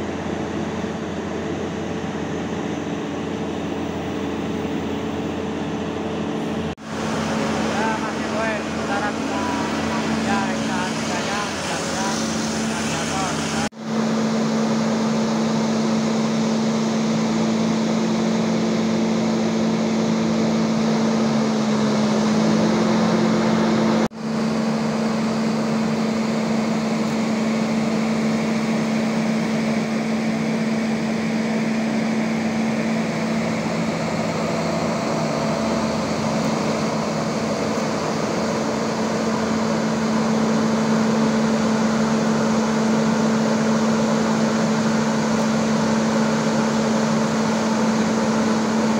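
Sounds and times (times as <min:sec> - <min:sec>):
diesel engine droning: 0:00.0 - 0:48.9.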